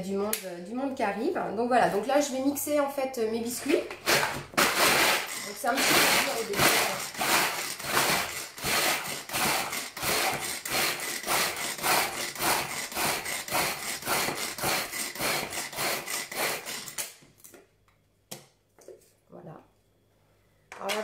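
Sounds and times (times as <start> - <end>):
pull-cord chopper pulls: 4.1 - 11.4.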